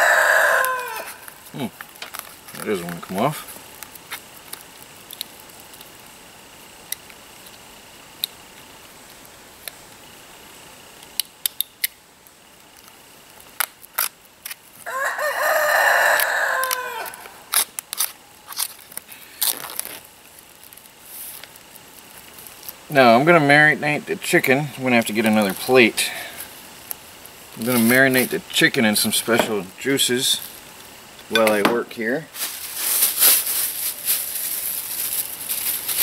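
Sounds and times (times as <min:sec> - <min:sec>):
rooster crowing: 0:00.0 - 0:01.3, 0:14.8 - 0:17.5
knife slitting plastic film: 0:17.5 - 0:20.1, 0:32.4 - 0:36.0.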